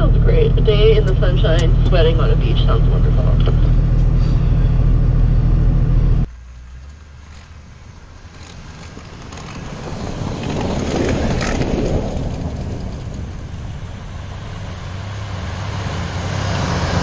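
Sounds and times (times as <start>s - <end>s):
car engine running: 0.0s - 17.0s
tyres churning snow: 0.0s - 17.0s.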